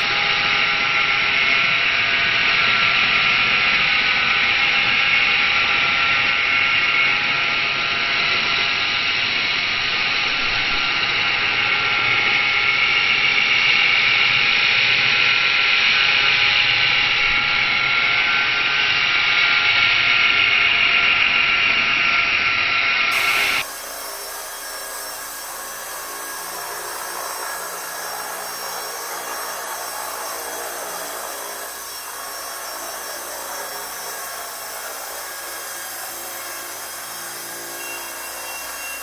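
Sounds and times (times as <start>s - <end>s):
rc helicopter motor whine: 0.0s - 14.4s, 15.0s - 39.0s.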